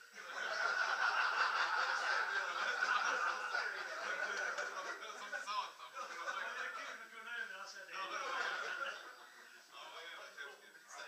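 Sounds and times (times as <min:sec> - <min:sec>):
group of people laughing: 0:00.0 - 0:07.0, 0:08.0 - 0:09.7.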